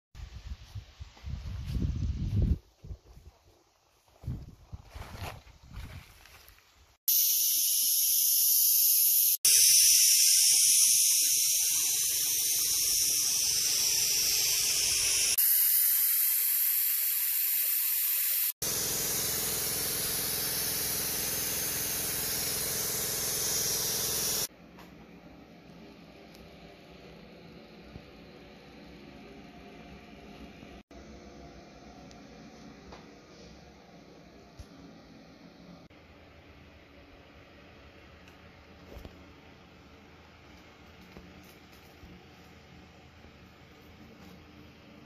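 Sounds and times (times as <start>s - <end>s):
sandblaster hissing: 7.1s - 24.5s.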